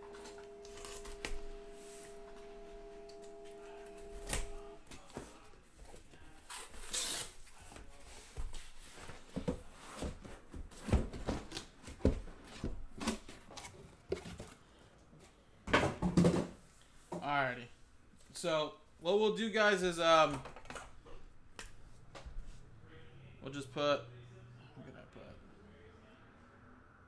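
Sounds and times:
boxes knocking and scuffing: 7.7 - 14.6.

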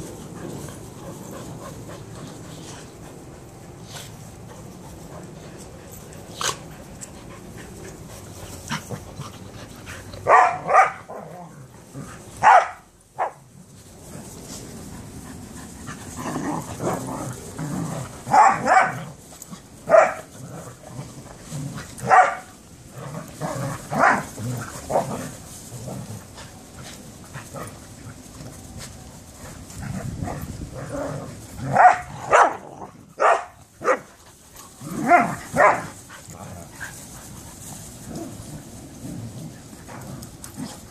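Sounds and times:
dogs barking: 10.2 - 11.3, 12.4 - 13.4, 18.3 - 19.0, 19.9 - 20.3, 22.0 - 22.5, 31.7 - 34.1, 35.0 - 35.9
dogs growling: 14.0 - 28.7, 29.3 - 33.2, 34.5 - 40.9.

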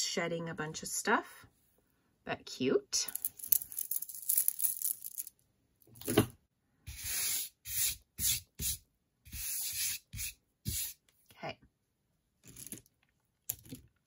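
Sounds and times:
beaded bracelets rustling and clicking: 3.1 - 5.4, 12.4 - 13.8.

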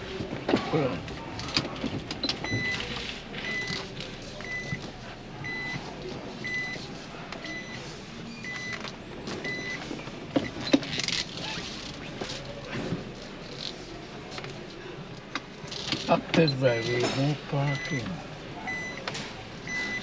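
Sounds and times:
reverse warning beeps: 4.4 - 4.8, 5.4 - 6.8, 7.4 - 8.8, 9.4 - 9.8, 17.7 - 18.1, 18.7 - 19.0, 19.7 - 20.0.

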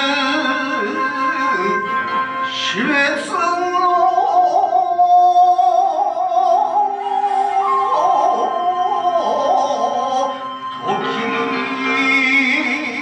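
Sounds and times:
sustained musical accompaniment: 0.0 - 13.0
man chanting poetry: 2.6 - 13.0.

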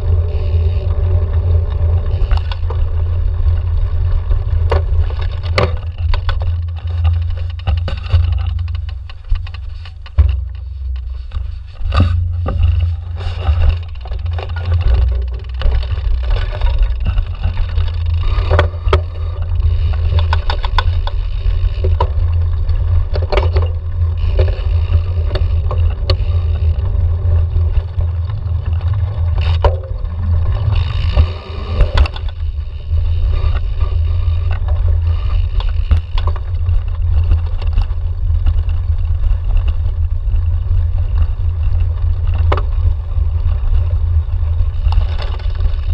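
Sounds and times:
bicycle tyre noise: 0.0 - 45.9
bike rattling over bumps: 0.0 - 45.9
wind rumble on microphone: 0.0 - 45.9.

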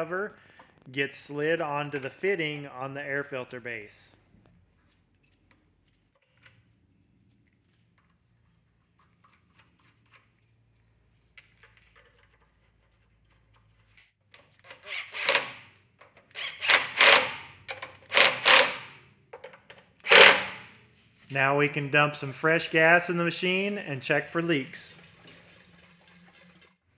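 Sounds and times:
impact driver hammering: 15.1 - 15.6, 16.4 - 19.0, 20.1 - 20.7.

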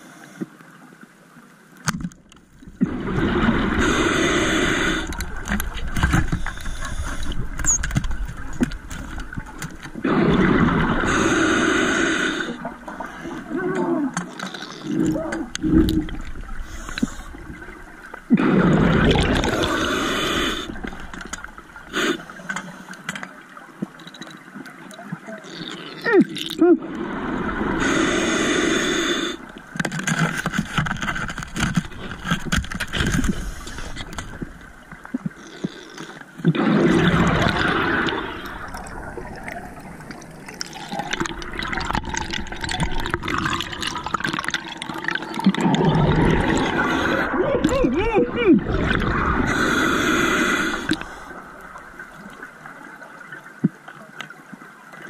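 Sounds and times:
exhaled air bubbling underwater: 2.5 - 29.9, 30.8 - 55.0
regulator hiss: 49.5 - 51.4.

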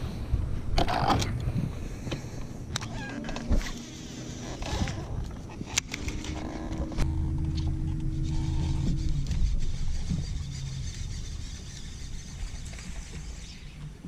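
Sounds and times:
fishing reel whirring: 3.4 - 14.0.

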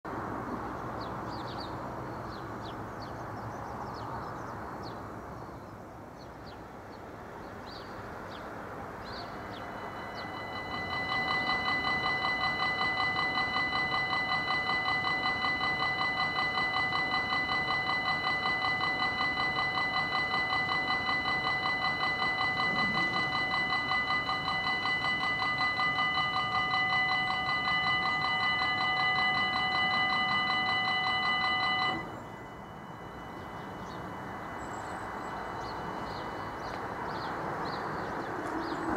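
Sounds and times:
birds chirping: 0.5 - 38.9
level crossing bell ringing: 9.2 - 38.2.

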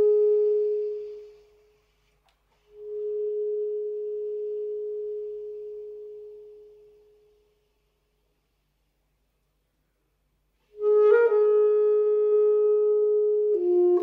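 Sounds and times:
saxophone slow melody: 0.0 - 7.6, 10.6 - 14.0.

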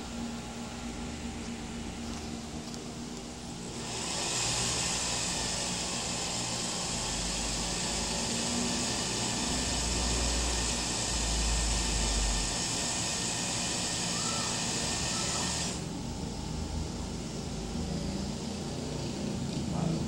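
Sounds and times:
sewing machine motor whirring: 3.8 - 15.9.

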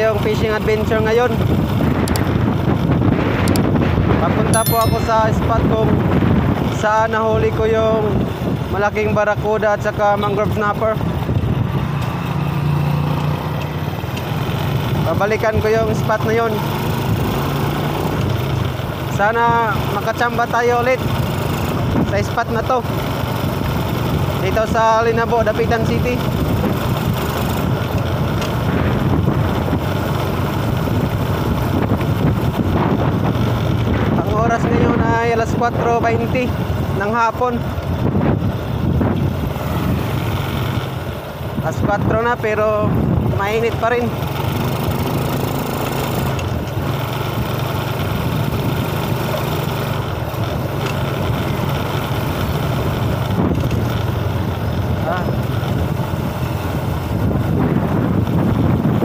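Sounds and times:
wind buffeting microphone: 1.3 - 4.5, 5.3 - 9.4, 26.0 - 37.0, 37.8 - 40.2, 41.4 - 43.6, 53.0 - 56.2, 56.8 - 59.0
motorcycle engine running: 7.9 - 59.0.

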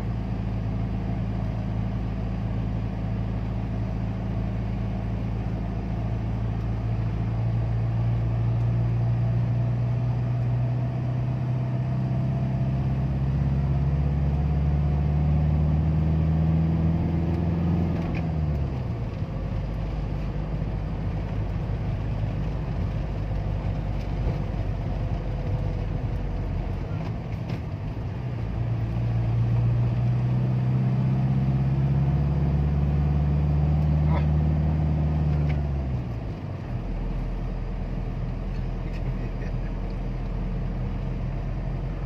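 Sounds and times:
car engine hum: 0.0 - 42.0
tyre and road rumble: 16.6 - 42.0.

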